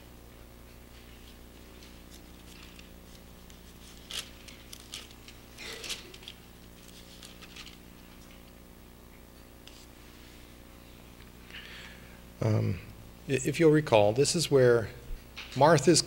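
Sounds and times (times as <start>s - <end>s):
low electrical hum: 0.0s - 16.0s
pages turning: 1.1s - 8.4s, 9.7s - 9.9s.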